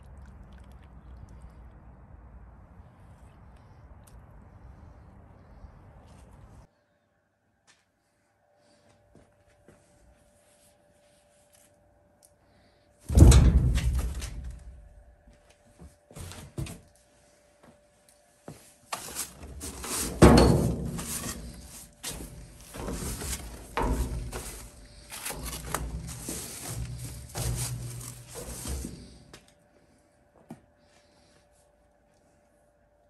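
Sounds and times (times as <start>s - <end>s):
loud thud in metal dumpster: 13.1s - 14.8s, 20.0s - 24.8s
push broom scraping steel floor: 18.9s - 29.2s.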